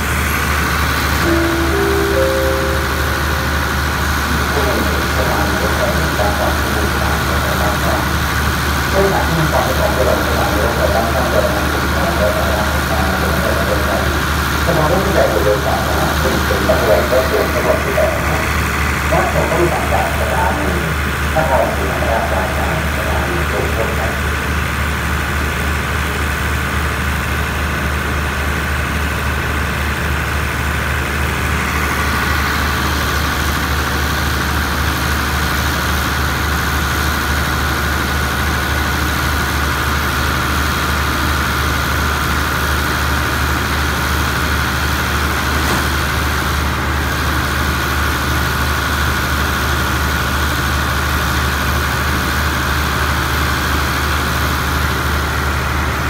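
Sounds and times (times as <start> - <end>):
steady high whine: 0.0 - 25.3
diesel train engines idling: 0.0 - 56.0.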